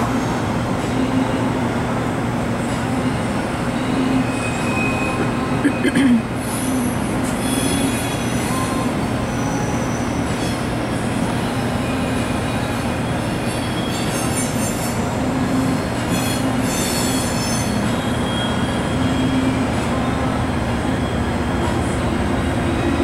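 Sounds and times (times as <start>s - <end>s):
train cars rumbling past: 0.0s - 23.0s
wheels squealing: 6.5s - 10.7s, 13.4s - 15.1s, 16.0s - 20.2s.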